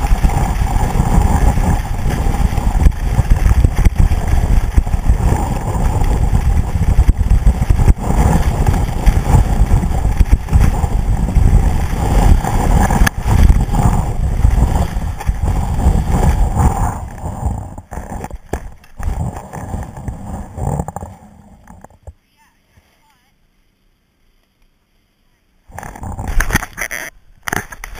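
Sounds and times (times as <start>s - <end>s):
skis scraping over snow: 0.0s - 22.1s
wind buffeting microphone: 0.0s - 22.1s.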